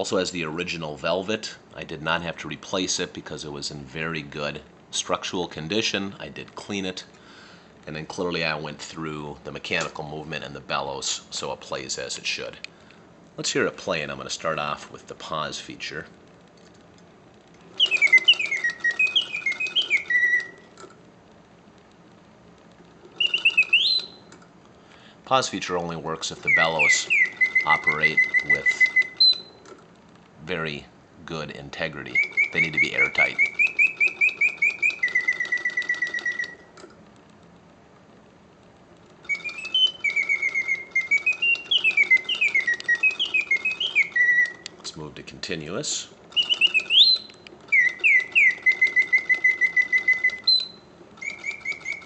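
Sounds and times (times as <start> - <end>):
mechanical clicking: 16.4 - 21.1, 25.6 - 30.4, 31.9 - 37.7, 38.6 - 45.0, 46.2 - 52.0
mechanical bird whistling chirps: 17.7 - 20.7, 23.1 - 24.4, 25.5 - 29.6, 31.9 - 36.7, 39.2 - 44.8, 46.3 - 52.0.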